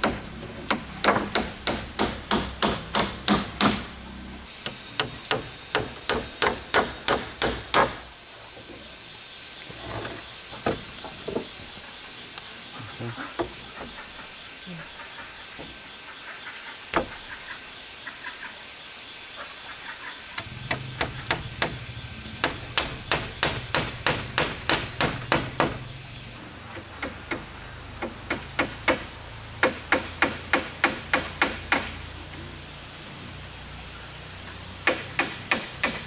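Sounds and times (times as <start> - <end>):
hammer driving nails into wood: 0.0 - 3.9, 4.6 - 8.0, 22.4 - 25.8, 34.9 - 36.0.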